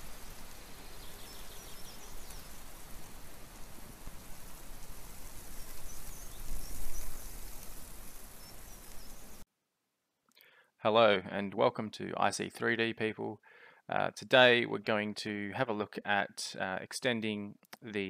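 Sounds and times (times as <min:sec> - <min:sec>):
rain-like hiss: 0:00.0 - 0:09.4
faint high bird chirps: 0:00.4 - 0:02.9, 0:05.4 - 0:07.4.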